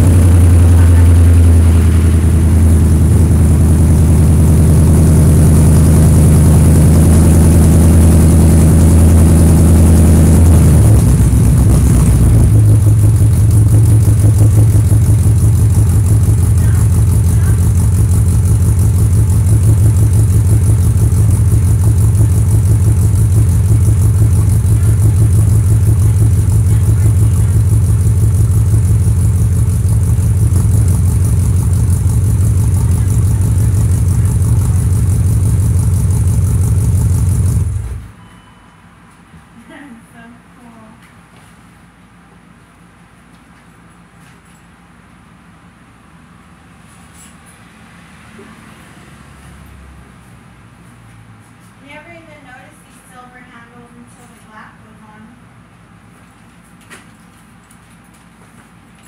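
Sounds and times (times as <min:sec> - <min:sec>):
car engine idling: 0:00.0 - 0:38.2.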